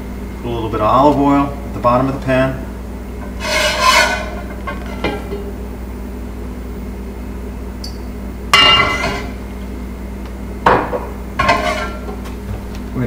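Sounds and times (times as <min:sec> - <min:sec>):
steady background hum: 0:00.0 - 0:13.0
pan clanking on stove grate: 0:03.2 - 0:05.5, 0:08.6 - 0:09.4, 0:10.7 - 0:12.2.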